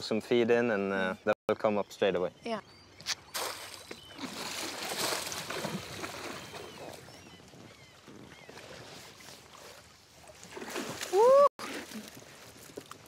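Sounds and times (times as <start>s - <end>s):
fish splashing in water: 3.3s - 7.1s.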